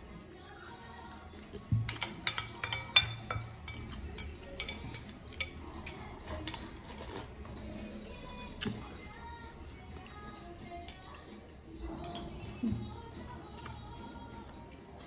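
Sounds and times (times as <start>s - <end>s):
chopsticks clinking on bowl: 1.6s - 7.3s.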